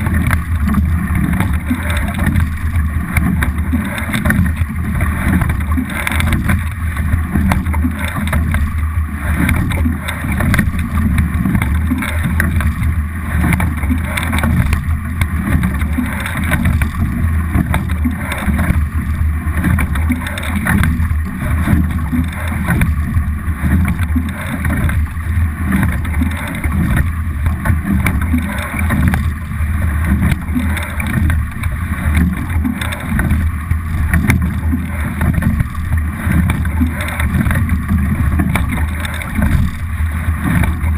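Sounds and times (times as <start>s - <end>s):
water rushing along boat hull: 0.0s - 40.9s.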